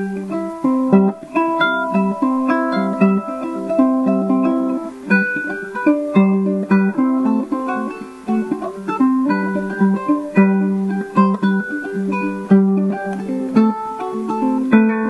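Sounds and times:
ukulele playing: 0.0s - 15.0s.

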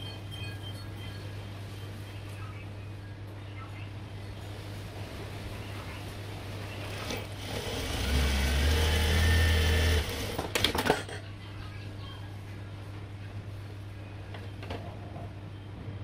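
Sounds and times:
sewing machine stitching: 6.9s - 10.8s.

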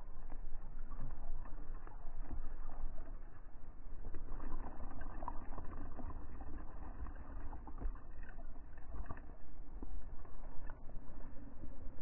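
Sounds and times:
faint ticks and splashes: 0.0s - 12.0s.

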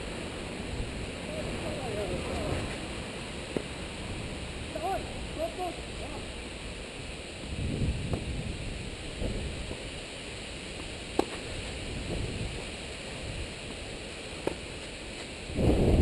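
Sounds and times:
wind noise on microphone: 7.4s - 10.0s, 11.4s - 13.7s, 15.4s - 16.0s
racket hitting tennis ball: 10.7s - 11.6s, 14.4s - 15.3s.

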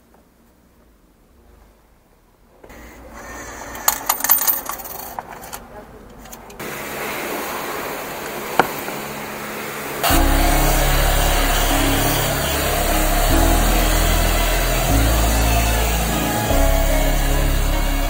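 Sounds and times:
tokens clinking into machine: 3.8s - 5.6s
pressure lance spraying: 10.0s - 18.0s
pump hissing: 10.0s - 18.0s.

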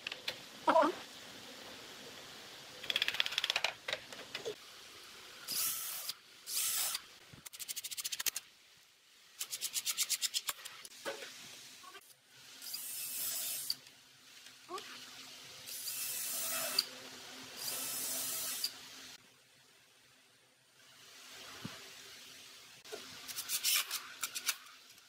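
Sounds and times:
drill driving screws into wood: 5.5s - 7.0s, 17.6s - 18.7s.

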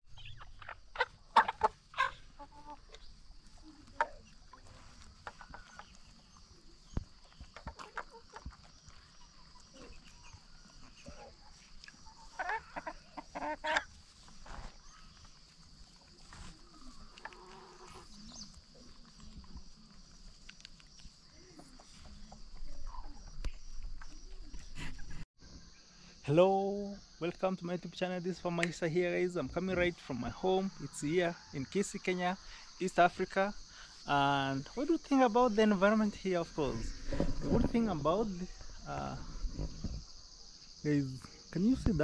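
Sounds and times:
chickens clucking: 0.1s - 25.2s
faint high-pitched hiss: 1.7s - 42.0s.

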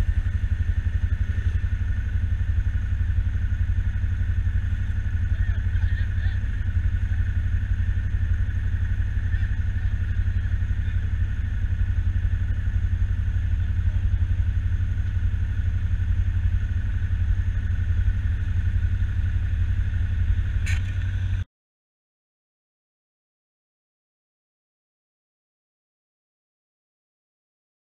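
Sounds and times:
atv engine idling: 0.0s - 21.5s.

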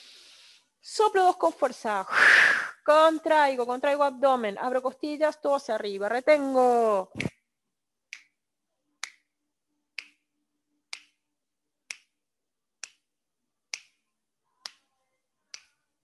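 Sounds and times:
finger snaps: 8.1s - 8.4s, 9.0s - 9.3s, 10.0s - 10.2s, 10.9s - 11.2s, 11.9s - 12.2s, 12.8s - 13.1s, 13.7s - 14.0s, 14.6s - 14.9s, 15.5s - 15.8s.

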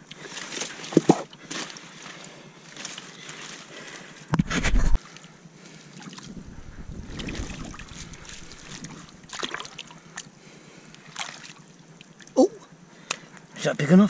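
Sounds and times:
water sloshing in rock pool: 0.0s - 4.0s, 4.9s - 10.3s, 11.0s - 12.4s
low rumble of moving water: 0.0s - 13.0s.

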